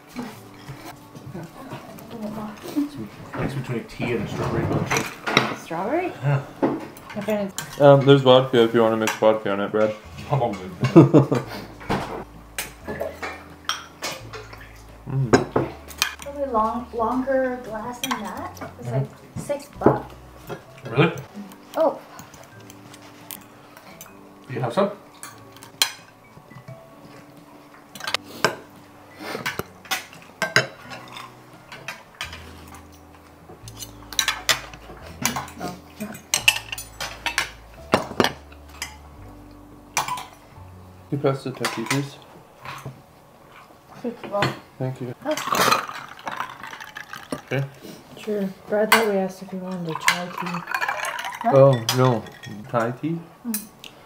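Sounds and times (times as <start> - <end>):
cutlery clinking on plates: 6.6 - 14.7, 27.9 - 33.1, 33.7 - 39.0, 41.6 - 43.7, 48.9 - 53.9.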